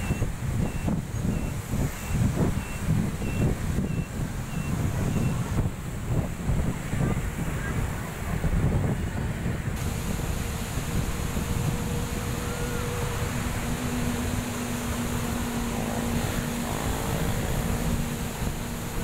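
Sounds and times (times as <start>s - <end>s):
wind buffeting microphone: 0.0s - 19.0s
faint steady hum: 9.8s - 19.0s
river rushing: 9.8s - 19.0s.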